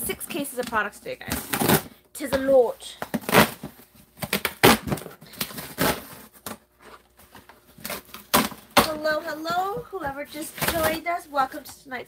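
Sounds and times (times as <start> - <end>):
cardboard boxes knocking and rustling: 7.2 - 11.1.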